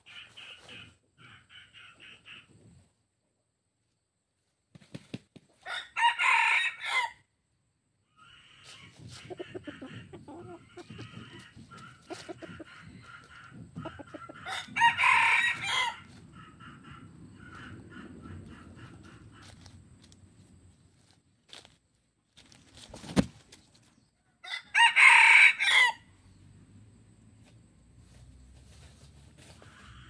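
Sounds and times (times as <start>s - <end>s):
chicken clucking: 0.0s - 3.0s, 8.2s - 14.9s, 15.6s - 20.2s
rooster crowing: 5.6s - 7.2s, 14.3s - 16.1s, 24.3s - 26.1s
rustle of dry leaves underfoot: 19.4s - 23.8s, 27.9s - 30.0s.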